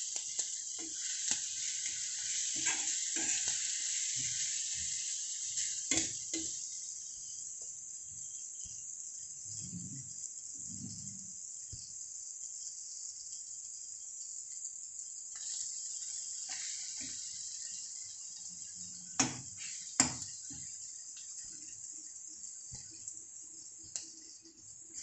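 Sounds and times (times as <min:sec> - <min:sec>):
food sizzling in oil: 0:00.0 - 0:25.0.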